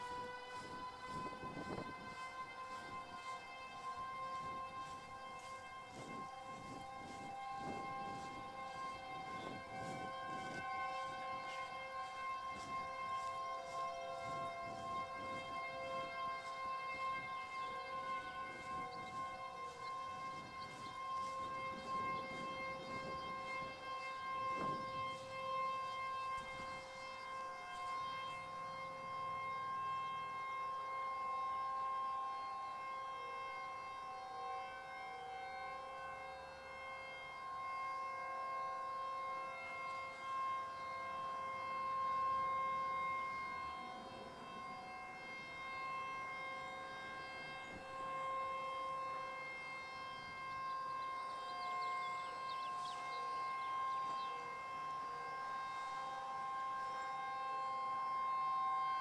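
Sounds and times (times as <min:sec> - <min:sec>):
distant warning sirens: 0:00.0 - 0:59.0.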